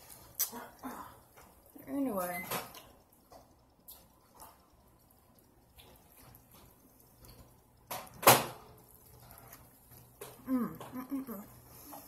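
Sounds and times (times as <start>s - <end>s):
wet chewing smacks and clicks: 2.7s - 7.9s.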